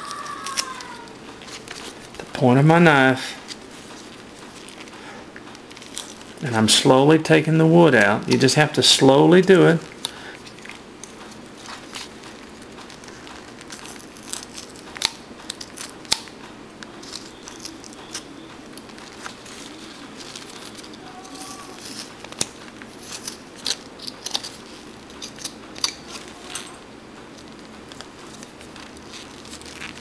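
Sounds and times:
knife carving wood: 10.4s - 16.3s, 16.9s - 26.8s.

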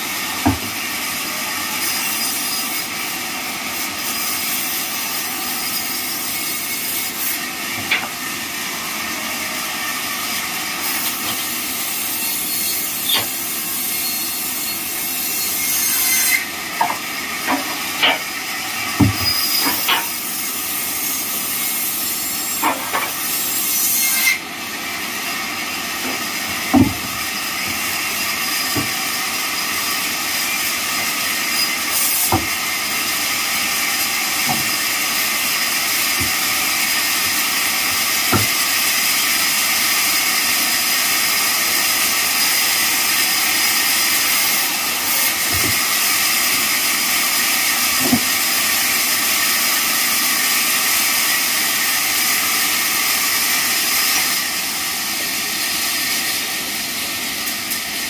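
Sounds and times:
knocks of wood being handled: 0.4s - 0.8s, 16.8s - 18.3s, 18.9s - 20.1s, 26.0s - 28.0s, 28.7s - 29.0s, 32.2s - 32.6s, 34.4s - 35.0s, 35.8s - 36.5s, 38.2s - 38.7s, 45.2s - 46.1s
band sawmill hissing: 4.0s - 58.0s.

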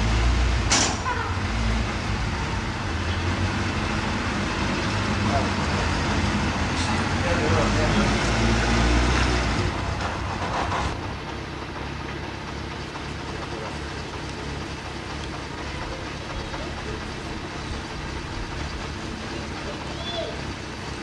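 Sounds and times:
motorcycle engine idling: 10.2s - 21.0s.

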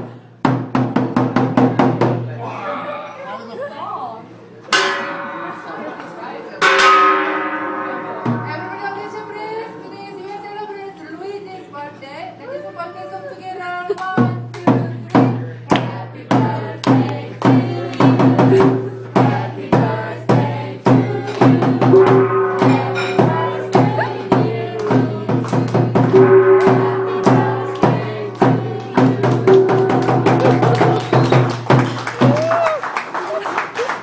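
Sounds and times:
steady drum beat: 14.1s - 32.6s
people chanting together: 15.7s - 30.1s.

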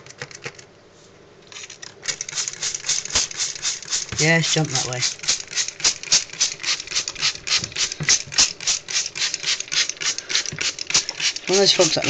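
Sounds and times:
rapid rhythmic rasping: 2.1s - 12.0s.

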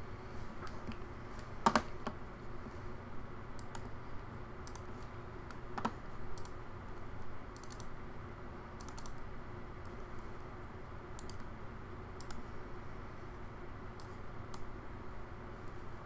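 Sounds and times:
computer keyboard tapping: 1.6s - 2.2s
computer mouse clicks: 3.6s - 3.9s, 4.6s - 6.6s, 7.2s - 7.9s, 8.8s - 10.0s, 11.2s - 11.5s, 12.2s - 12.5s, 13.9s - 14.7s.

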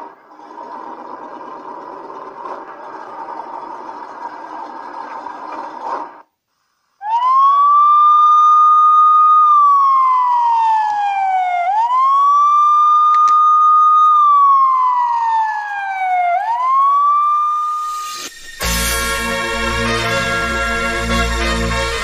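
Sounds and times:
electronic police siren wail: 7.0s - 22.0s.

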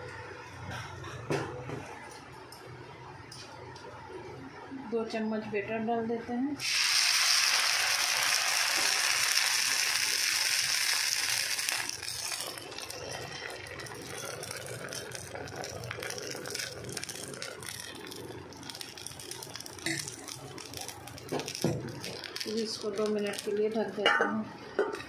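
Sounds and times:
batter sizzling in hot oil: 6.6s - 23.8s.

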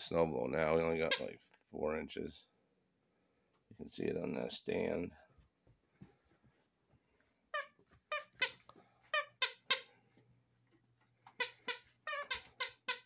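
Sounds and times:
squeaky dog toy squeaking: 1.0s - 1.4s, 7.5s - 9.9s, 11.4s - 13.0s.

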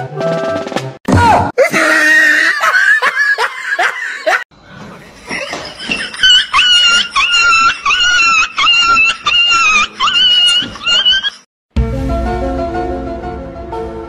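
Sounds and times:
group of people laughing: 1.6s - 4.4s, 5.1s - 11.5s
high-pitched animal cries: 6.9s - 11.4s.

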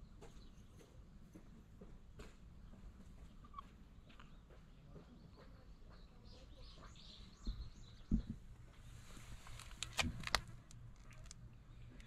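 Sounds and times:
faint bird chirps: 2.6s - 8.4s
soft thumps: 7.4s - 9.3s.

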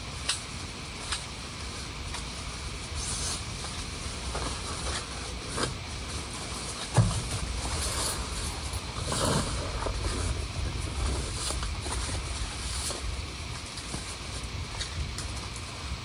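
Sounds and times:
rustle: 0.1s - 15.8s
wind rumbling on microphone: 8.2s - 16.0s.

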